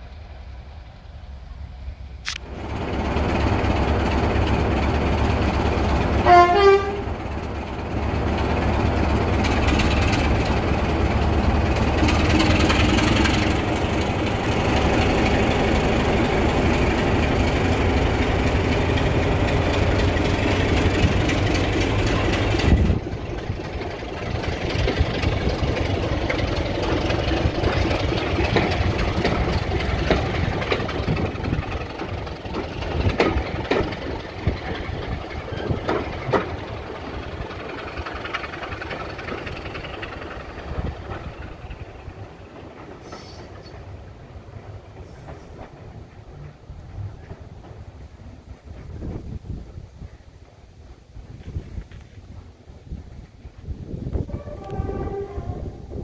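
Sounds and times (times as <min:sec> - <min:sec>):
diesel locomotive engine working: 0:00.0 - 0:56.0
coaches rumbling on track: 0:01.9 - 0:50.9
train horn blast: 0:06.2 - 0:07.2, 0:54.2 - 0:56.0.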